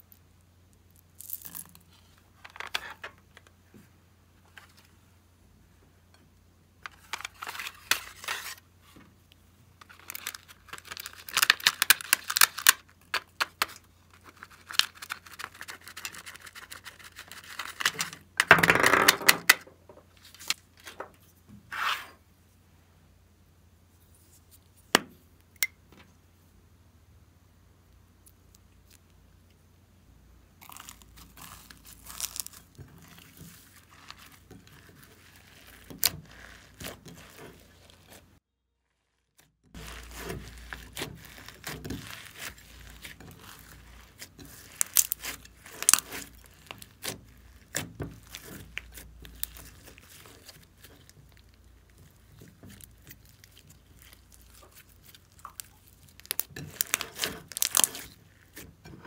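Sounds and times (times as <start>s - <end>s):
slime squelching with crackles: 30.6s - 58.9s.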